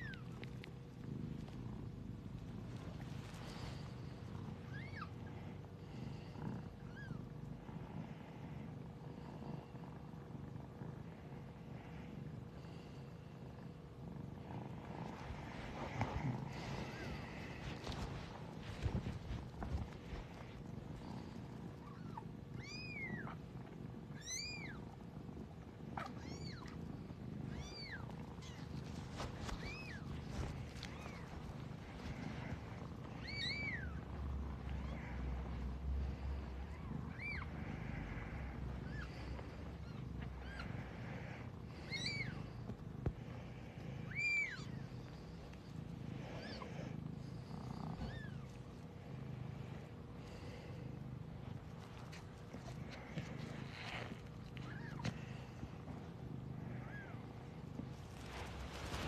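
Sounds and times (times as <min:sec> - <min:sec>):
cat purring: 0:00.0 - 0:59.0
kittens mewing: 0:27.5 - 0:41.3.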